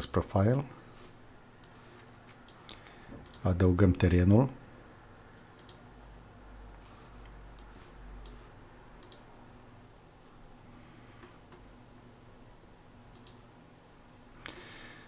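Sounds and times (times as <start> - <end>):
low steady hum: 0.0 - 15.0
computer mouse clicks: 1.6 - 3.5, 5.6 - 5.8, 7.2 - 8.4, 9.0 - 9.3, 13.1 - 13.4.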